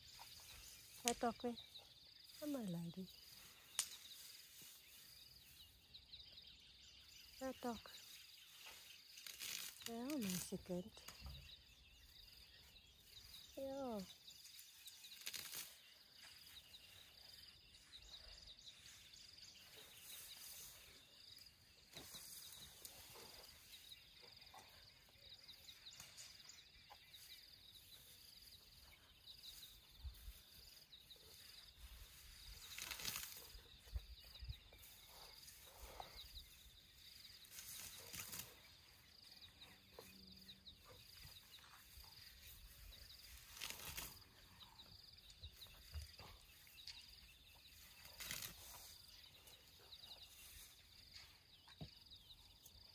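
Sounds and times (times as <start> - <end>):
insects chirping: 0.0 - 52.9
elephant ripping and munching grass: 9.0 - 10.4, 14.8 - 16.4, 32.2 - 33.8, 37.2 - 38.8, 41.8 - 44.4, 47.6 - 49.1.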